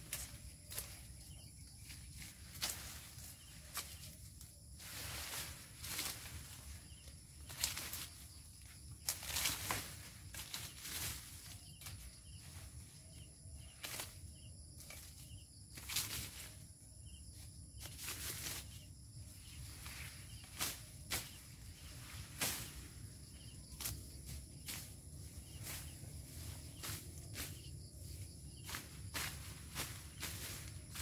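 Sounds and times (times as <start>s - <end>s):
dry leaves cracking and rustling: 7.4s - 8.2s, 9.0s - 12.0s.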